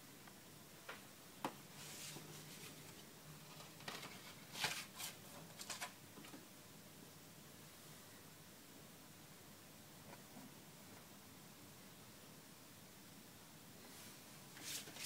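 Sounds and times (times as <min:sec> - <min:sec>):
paper and plastic rustling: 0:01.8 - 0:06.0, 0:14.6 - 0:15.0.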